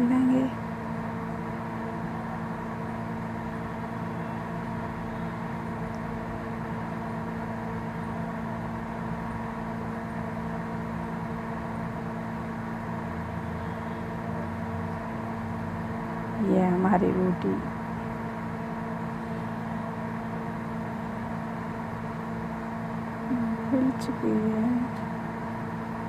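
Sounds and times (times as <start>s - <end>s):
machine hum: 0.0s - 26.0s.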